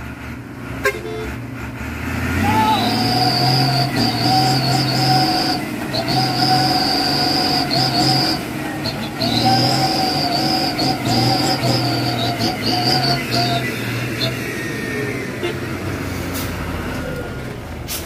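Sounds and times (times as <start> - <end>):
truck engine under load: 0.0 - 18.0
loud shrill whine: 2.4 - 14.4.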